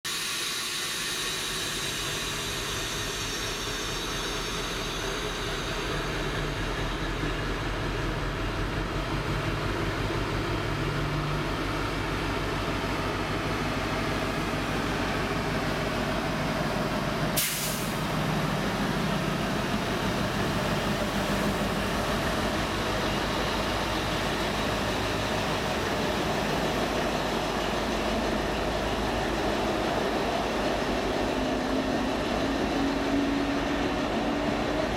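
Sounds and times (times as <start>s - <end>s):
diesel locomotive engine working: 0.1s - 34.9s
sharp hiss of air: 17.4s - 18.2s.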